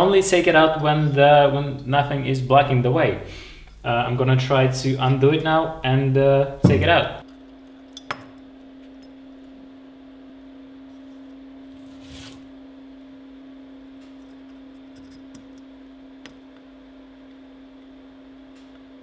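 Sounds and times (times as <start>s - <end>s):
steady hum-like tone: 0.0s - 19.0s
short scrape: 11.7s - 12.5s.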